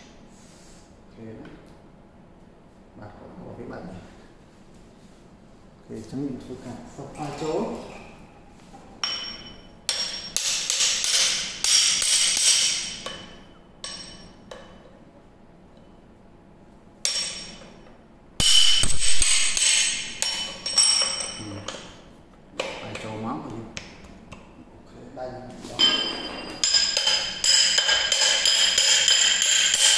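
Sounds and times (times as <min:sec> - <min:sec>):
ringing metallic tone: 0:25.8 - 0:29.9.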